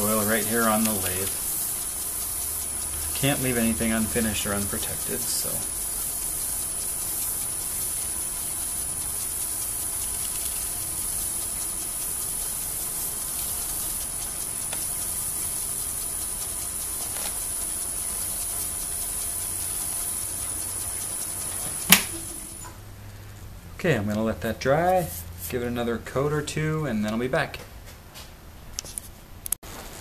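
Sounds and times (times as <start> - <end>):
paper towel rubbing workpiece: 0.0 - 20.2
wood lathe whining: 0.0 - 22.6.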